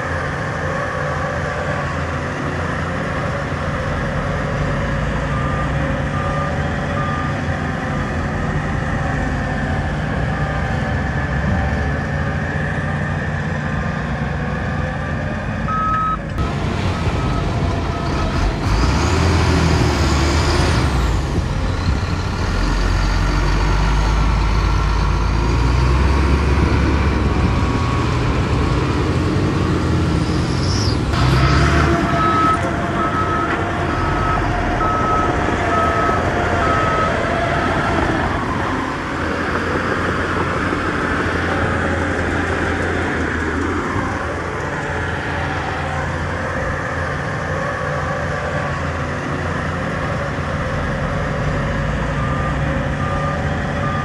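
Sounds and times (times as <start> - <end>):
diesel engines running under load: 0.0 - 54.0
reversing alarm beeping: 15.7 - 16.3, 31.9 - 37.9, 52.0 - 54.0.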